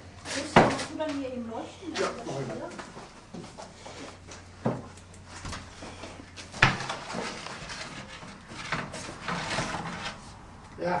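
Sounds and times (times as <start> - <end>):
wooden tools knocking and scraping: 4.6 - 10.4.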